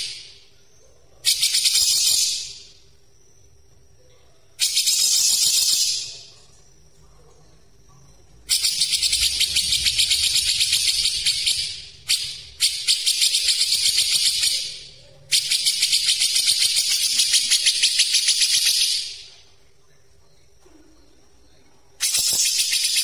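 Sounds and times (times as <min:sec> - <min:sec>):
bird singing rapid high notes: 0:08.5 - 0:19.1.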